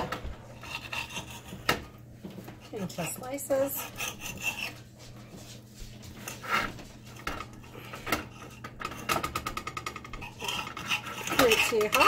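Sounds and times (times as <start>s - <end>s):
knife scraping on stone: 0.5s - 2.0s, 2.7s - 5.0s, 6.0s - 12.0s
knife sawing through crust: 0.6s - 1.7s, 2.7s - 4.9s, 6.1s - 8.6s, 10.1s - 12.0s.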